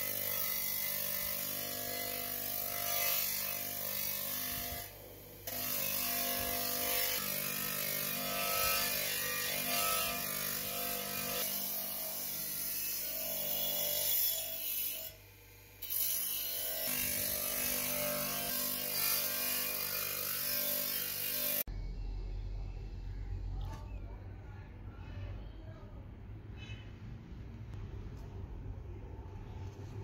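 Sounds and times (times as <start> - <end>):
bench grinder motor hum: 0.0 - 21.7.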